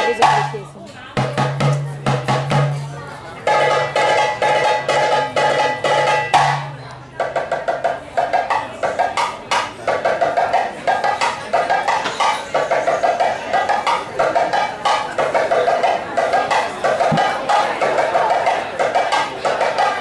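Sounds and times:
hand drumming: 13.8s - 18.6s.

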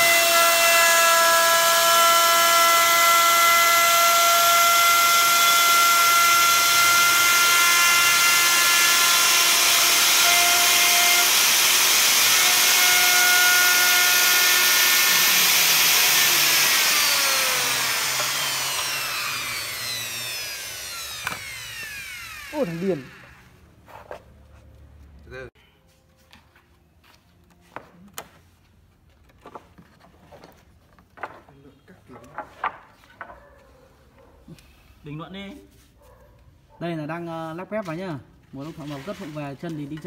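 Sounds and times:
router cutting wood with whine: 0.0s - 23.4s
router winding down: 0.0s - 23.5s.

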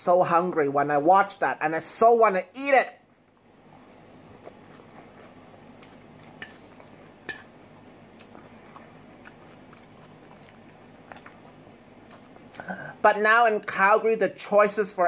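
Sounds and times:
person chewing: 3.1s - 12.9s.

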